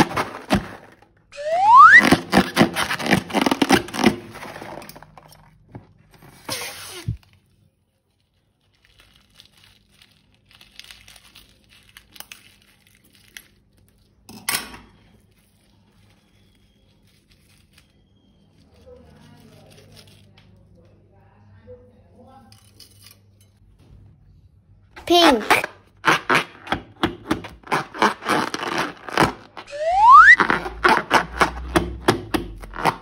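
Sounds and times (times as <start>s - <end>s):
short rising squeak: 1.4s - 2.9s, 29.6s - 31.0s
slime crackling and tearing: 1.6s - 4.8s, 7.2s - 14.2s, 25.3s - 33.0s.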